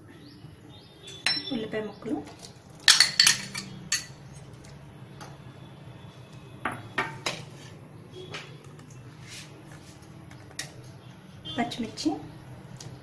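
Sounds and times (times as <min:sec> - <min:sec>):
spoon clinking against bowl: 0:02.9 - 0:04.2.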